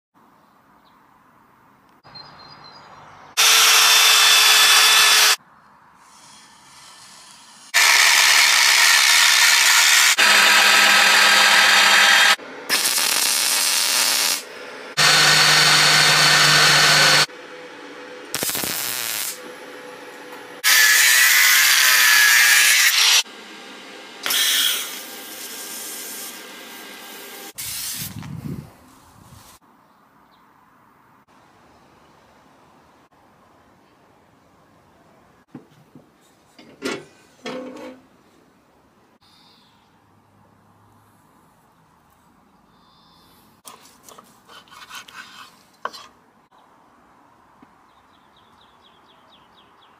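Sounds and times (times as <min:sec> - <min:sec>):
power tool grinding steel: 0:03.4 - 0:05.4, 0:06.4 - 0:17.3, 0:20.6 - 0:27.6.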